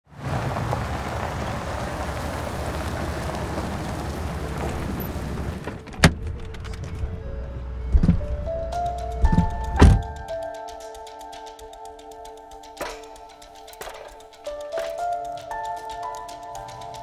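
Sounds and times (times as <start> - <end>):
pickup truck driving: 0.1 - 9.7
soft music notes: 5.8 - 17.0.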